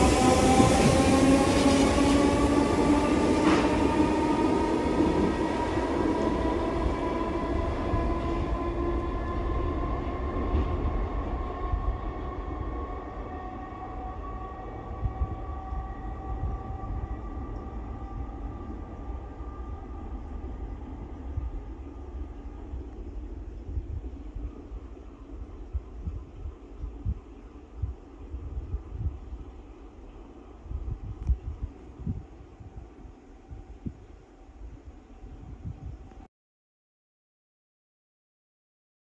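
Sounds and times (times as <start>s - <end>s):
electric train motor whine: 0.0s - 22.8s
low rumble: 0.0s - 36.3s.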